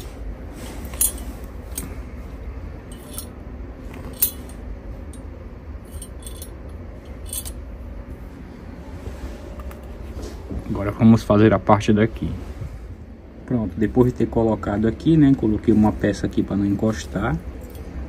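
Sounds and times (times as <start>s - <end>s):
metal parts clinking: 0.9s - 1.9s, 2.9s - 3.4s, 4.0s - 5.2s, 5.8s - 7.6s, 17.6s - 17.9s.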